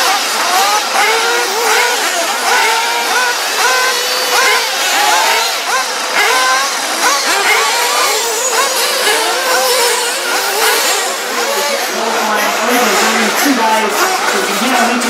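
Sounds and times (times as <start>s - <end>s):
rc car engines whining: 0.0s - 15.0s.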